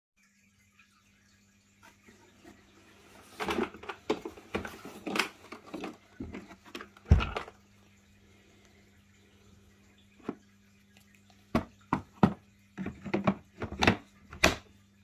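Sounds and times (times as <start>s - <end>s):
plastic case clicks and knocks: 11.6s - 14.6s.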